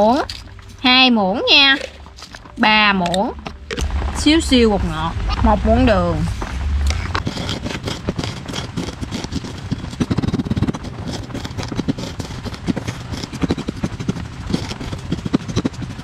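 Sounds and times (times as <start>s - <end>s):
pestle crunching salt on a plate: 6.9s - 16.0s.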